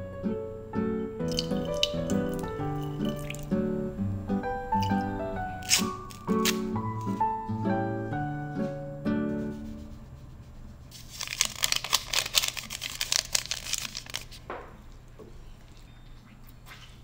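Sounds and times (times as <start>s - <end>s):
paper packet rustling: 5.6s - 7.2s, 10.9s - 14.5s.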